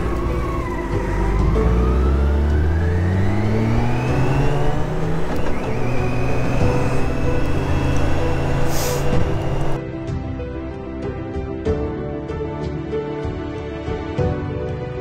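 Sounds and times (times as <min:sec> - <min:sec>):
motorcycle engine accelerating: 0:00.0 - 0:09.8.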